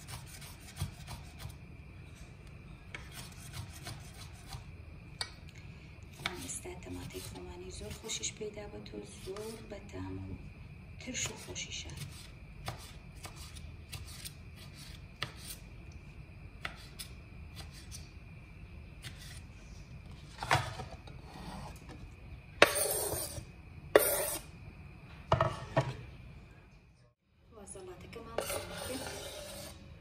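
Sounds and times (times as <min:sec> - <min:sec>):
knife scraping across board: 0:00.0 - 0:01.5, 0:02.9 - 0:04.6, 0:12.0 - 0:15.6, 0:20.4 - 0:21.9, 0:22.6 - 0:23.4, 0:24.0 - 0:24.5, 0:28.4 - 0:29.9.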